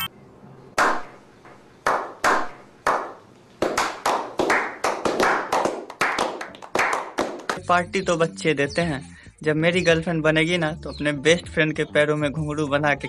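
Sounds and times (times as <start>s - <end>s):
group of men clapping: 0.8s - 1.1s, 1.8s - 7.6s.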